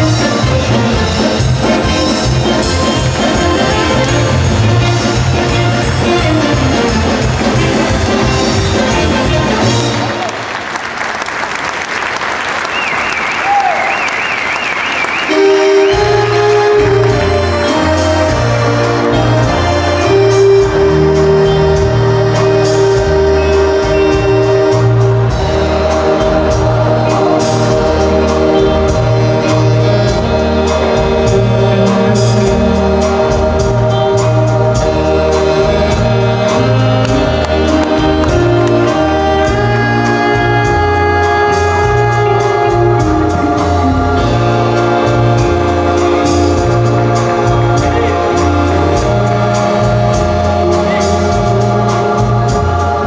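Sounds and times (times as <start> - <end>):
bass and drum beat: 0.0 - 10.1, 15.3 - 53.0
choir-like voices over chords: 16.6 - 39.7, 42.7 - 53.0.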